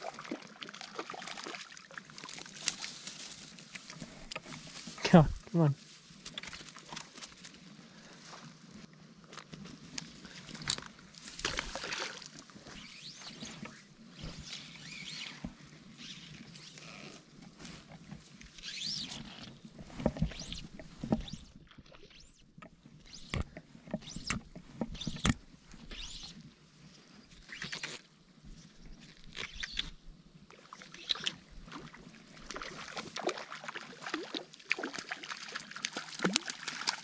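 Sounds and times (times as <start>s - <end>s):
fish splashing in net: 0.0s - 2.9s, 11.4s - 12.4s, 30.7s - 37.0s.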